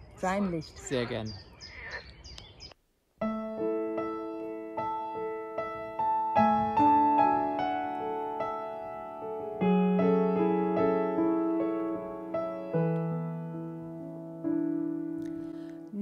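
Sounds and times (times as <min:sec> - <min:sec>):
piano chords and melody: 0:03.2 - 0:16.0.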